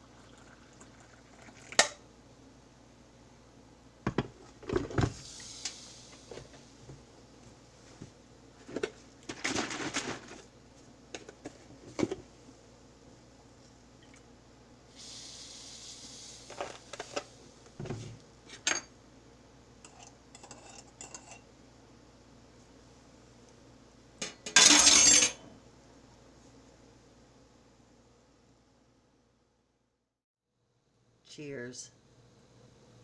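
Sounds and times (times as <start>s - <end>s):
milk pouring into mug: 0.0s - 1.9s
spoon stirring in mug: 19.9s - 21.4s
mug and dishes clinking: 24.2s - 25.4s.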